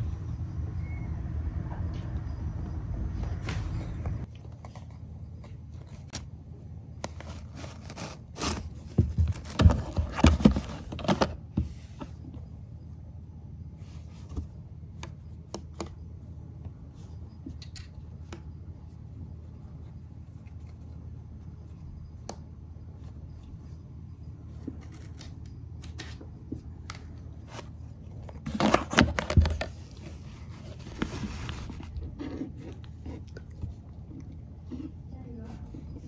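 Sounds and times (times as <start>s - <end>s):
kitten scratching cardboard box: 7.0s - 12.2s, 24.5s - 36.0s.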